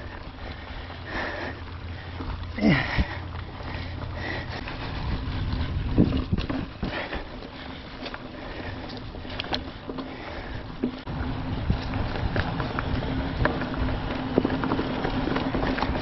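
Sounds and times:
rider breathing hard: 0:00.0 - 0:11.0
bike clicks and rattles: 0:00.0 - 0:16.0
bike tyres on dirt trail: 0:00.0 - 0:16.0
wind rumbling on microphone: 0:01.6 - 0:16.0.

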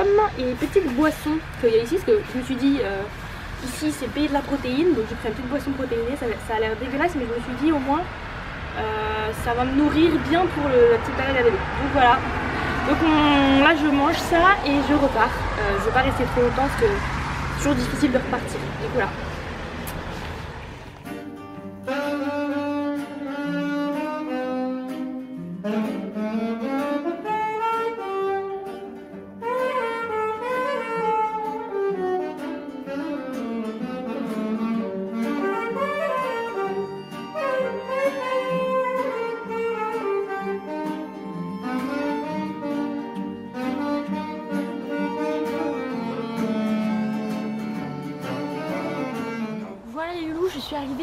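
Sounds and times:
instrumental background music: 0:20.9 - 0:50.0.

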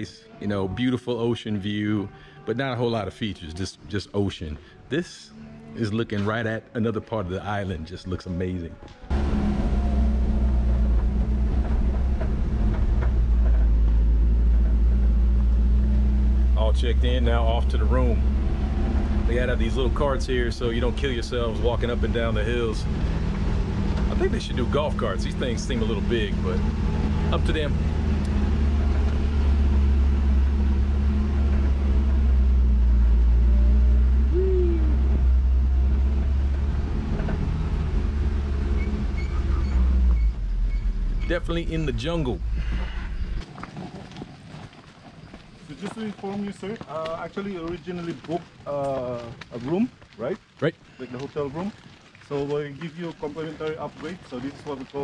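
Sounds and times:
cart engine droning: 0:09.1 - 0:44.4
short falling squeal: 0:38.6 - 0:41.6.

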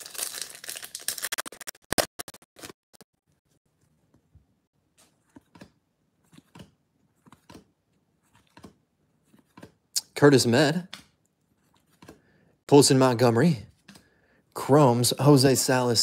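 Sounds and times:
foil wrapper crinkling and tearing: 0:00.0 - 0:02.0.

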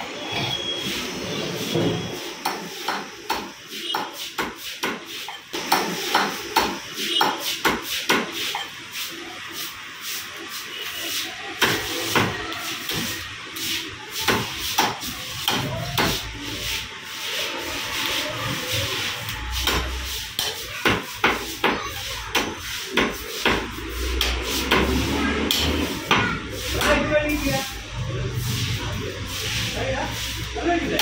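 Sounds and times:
knife chopping on chopping block: 0:19.6 - 0:27.0.

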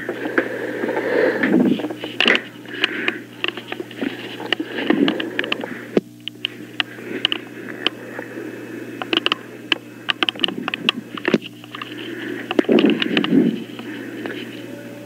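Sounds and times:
telephone line hum and hiss: 0:00.0 - 0:15.0
clicks and small knocks: 0:09.0 - 0:14.4.

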